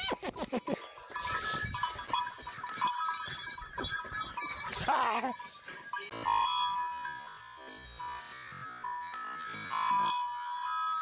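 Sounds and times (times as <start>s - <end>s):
bell ringing: 0.7s - 8.1s
cattle hooves knocking on stones: 1.1s - 6.2s.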